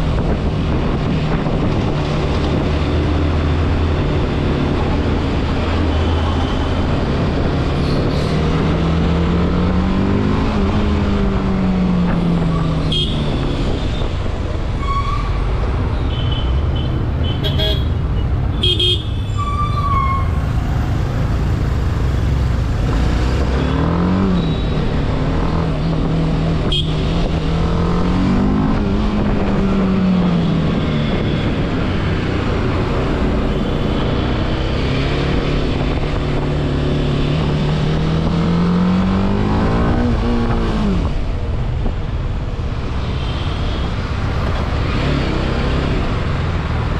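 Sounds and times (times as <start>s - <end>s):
traffic noise: 0.0s - 46.9s
vehicle horns tooting: 16.0s - 20.4s, 26.7s - 27.2s.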